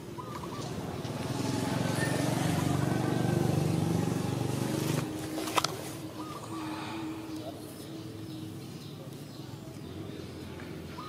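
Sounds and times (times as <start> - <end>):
vehicle engine running: 0.0 - 6.4.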